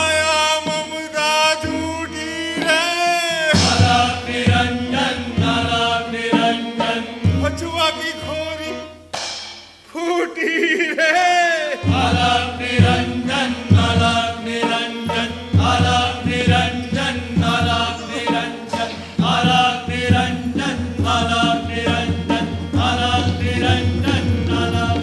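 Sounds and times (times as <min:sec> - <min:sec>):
drum beat: 0:02.7 - 0:05.9, 0:11.8 - 0:25.0.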